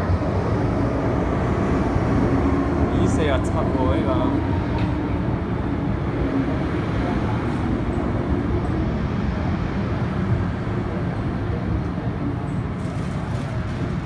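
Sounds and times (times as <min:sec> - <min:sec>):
standing train rumble and hum: 0:00.0 - 0:14.0.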